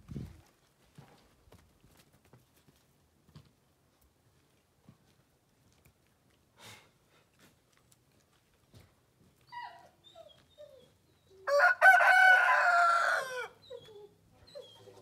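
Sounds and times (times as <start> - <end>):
rooster crowing: 11.4 - 13.6.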